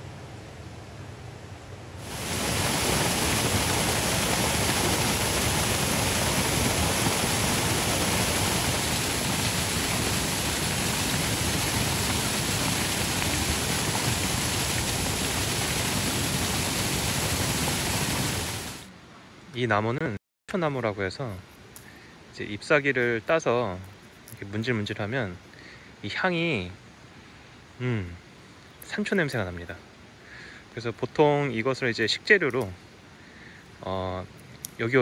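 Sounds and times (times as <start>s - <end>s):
stream water rushing: 2.0s - 18.9s.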